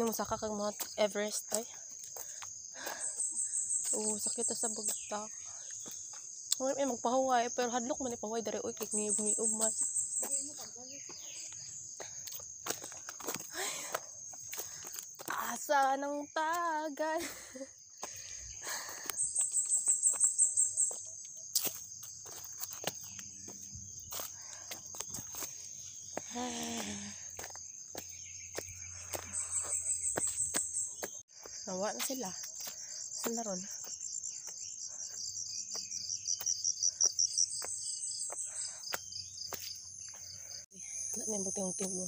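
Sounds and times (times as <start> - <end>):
footsteps on dirt trail: 0.0 - 42.0
high-pitched pulsed insect call: 0.0 - 42.0
insects trilling: 0.0 - 42.0
footsteps crunching on leaves: 19.4 - 31.2.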